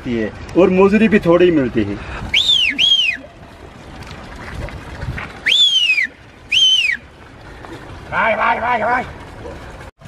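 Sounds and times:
loud whistled notes: 0:05.4 - 0:07.0.

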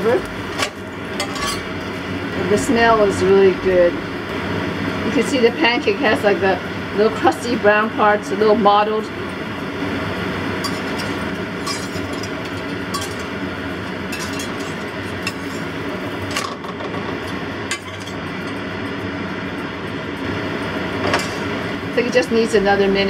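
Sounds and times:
metal spatula scraping pan: 0:00.6 - 0:01.7, 0:10.6 - 0:13.3, 0:14.1 - 0:15.7
pancake sizzling in oil: 0:09.1 - 0:22.0.

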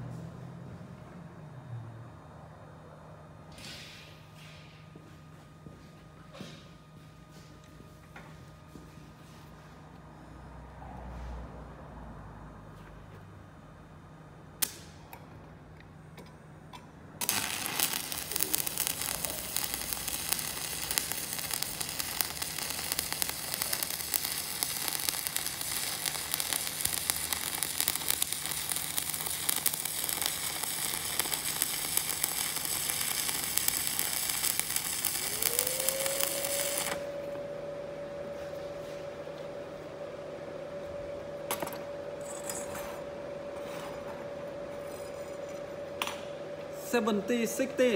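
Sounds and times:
welding arc crackling sizzle: 0:17.2 - 0:37.2.

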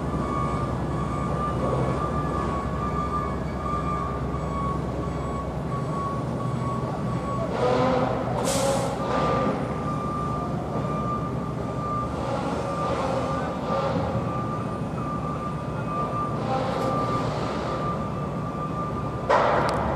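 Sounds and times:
construction machinery rumbling: 0:00.0 - 0:19.9
high warning alarm tone: 0:00.1 - 0:08.1.

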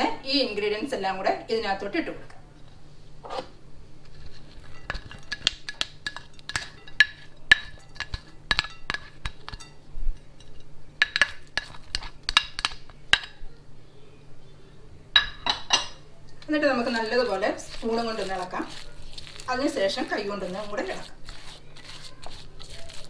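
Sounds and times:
spoon clinking on ceramic dishes: 0:04.6 - 0:13.4.

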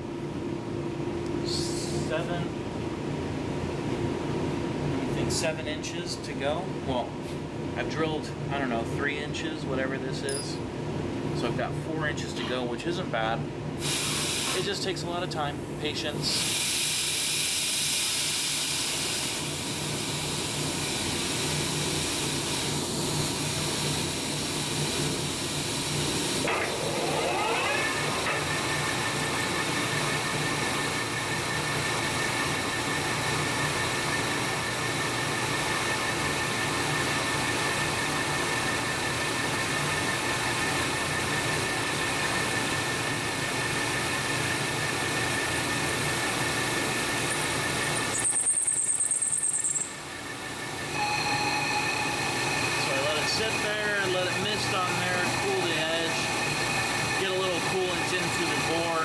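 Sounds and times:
metal lathe whine: 0:22.2 - 0:59.0.

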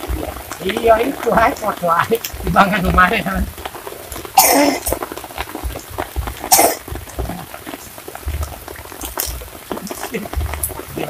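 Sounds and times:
light rain pattering: 0:00.0 - 0:11.0
person coughing: 0:04.4 - 0:04.9, 0:06.5 - 0:06.8.

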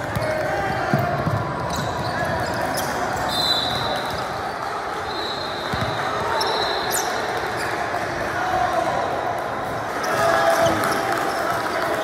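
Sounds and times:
basketball bouncing: 0:00.0 - 0:02.6, 0:05.7 - 0:06.0
sneakers squeaking on floor: 0:00.0 - 0:07.8.

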